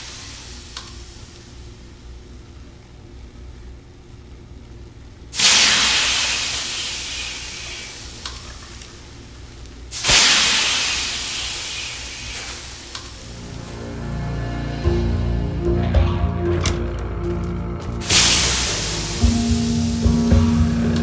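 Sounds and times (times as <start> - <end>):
steam hissing in bursts: 0.0 - 1.6, 5.3 - 9.3, 9.9 - 13.7, 18.0 - 21.0
low steady hum: 12.8 - 21.0.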